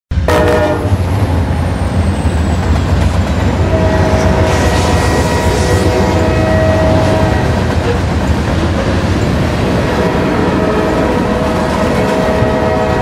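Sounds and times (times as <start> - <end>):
train rumbling past: 0.1 - 13.0
train air horn: 0.2 - 1.6, 3.6 - 8.0, 9.8 - 13.0.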